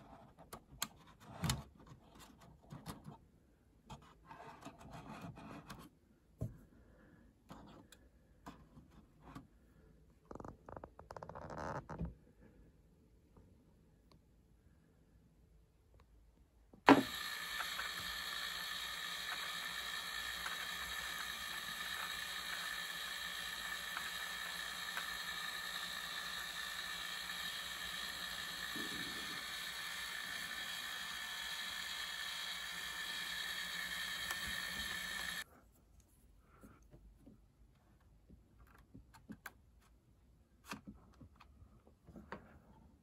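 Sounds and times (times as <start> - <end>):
electric motor gear whine: 16.9 - 35.4.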